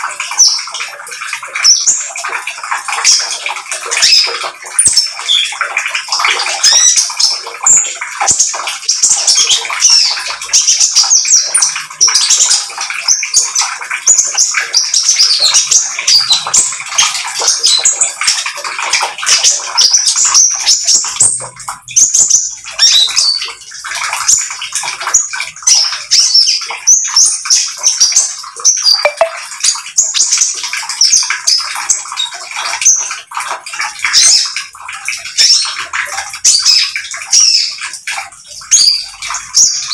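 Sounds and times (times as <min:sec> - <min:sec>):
bird singing rapid high chattering: 0:28.7 - 0:29.4.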